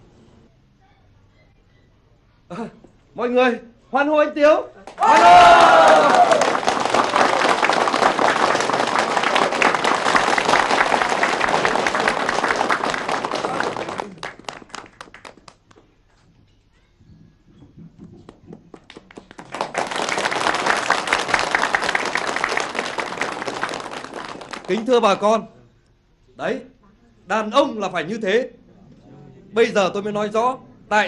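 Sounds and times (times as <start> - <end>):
audience applauding: 4.8 - 15.8, 18.6 - 25.0.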